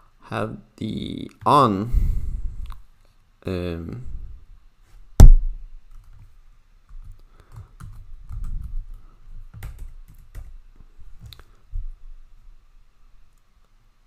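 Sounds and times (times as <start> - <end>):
loud sharp knock: 5.2 - 5.6
keyboard typing: 7.0 - 10.6.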